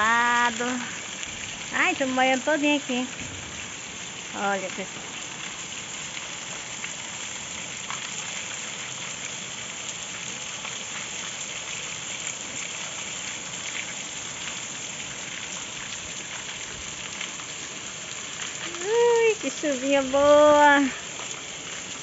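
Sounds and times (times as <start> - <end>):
raindrop hits: 0.0 - 3.8
light rain on wet pavement: 0.0 - 22.0.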